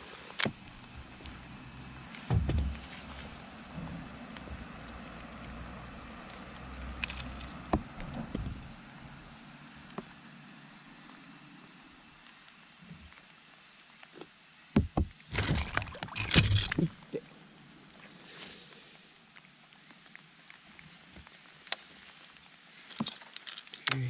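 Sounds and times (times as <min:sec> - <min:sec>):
steady high hiss: 0:00.0 - 0:14.8
water splashing and knocking: 0:02.2 - 0:03.2, 0:14.8 - 0:17.0.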